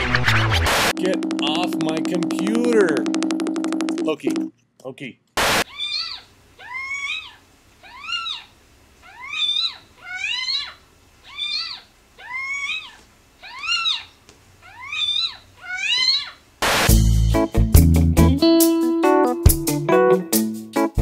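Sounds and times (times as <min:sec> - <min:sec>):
cat meowing: 0:05.6 - 0:16.4
guitar music: 0:16.9 - 0:21.0.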